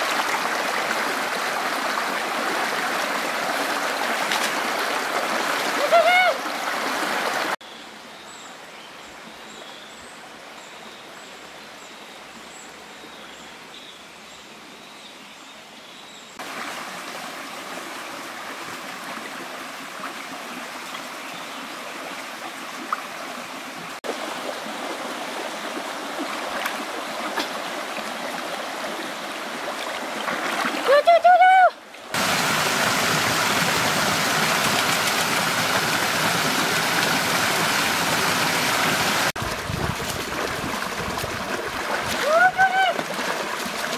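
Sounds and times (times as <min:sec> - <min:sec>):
water rushing over stones: 0:00.0 - 0:07.6, 0:16.4 - 0:20.7, 0:22.4 - 0:43.9.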